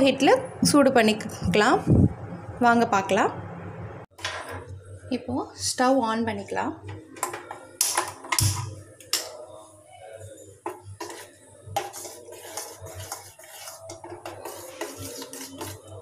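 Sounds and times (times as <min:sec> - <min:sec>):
spoon scraping a saucepan: 0:10.6 - 0:16.0.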